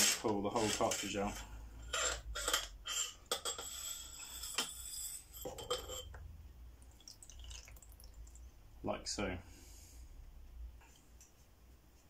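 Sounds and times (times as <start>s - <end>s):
metal scraping: 0.0s - 6.2s.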